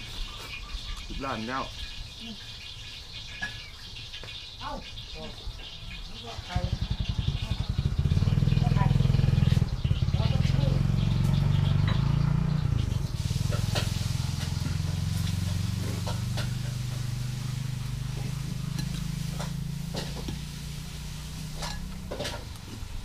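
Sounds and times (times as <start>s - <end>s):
vehicle engine humming: 5.7s - 23.0s
utensils clinking on bowl: 18.2s - 20.5s, 21.4s - 22.5s.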